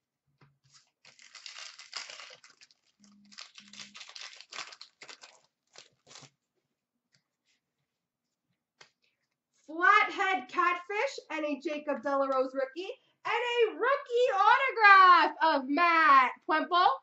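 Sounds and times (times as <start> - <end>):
wrapper rustling: 0.6 - 6.4
wrapper tearing and crinkling: 0.7 - 6.3.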